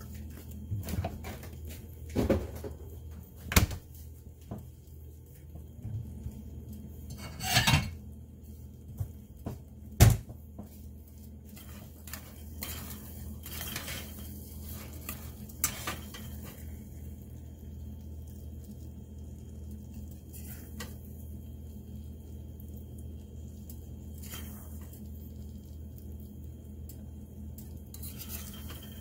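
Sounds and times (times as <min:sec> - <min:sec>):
metal spoon scraping a saucepan: 0:07.1 - 0:08.0, 0:11.6 - 0:16.4, 0:28.0 - 0:29.0.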